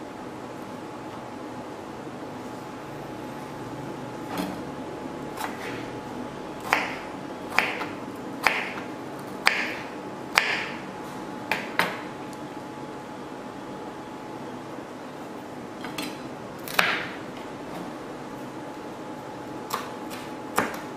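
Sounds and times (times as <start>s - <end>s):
knife chopping on plastic board: 6.7s - 10.8s, 11.5s - 12.0s, 19.7s - 20.9s.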